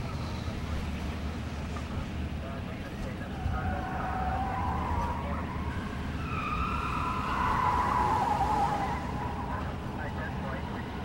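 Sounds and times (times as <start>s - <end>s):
car passing by: 3.4s - 11.0s.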